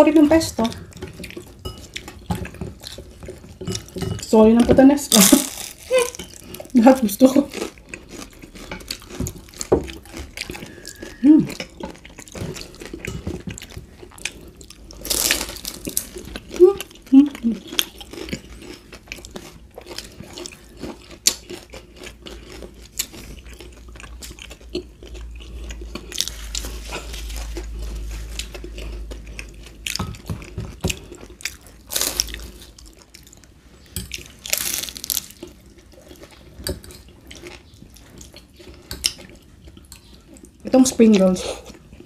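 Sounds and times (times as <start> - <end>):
crisp bites and chewing: 34.4 - 35.6.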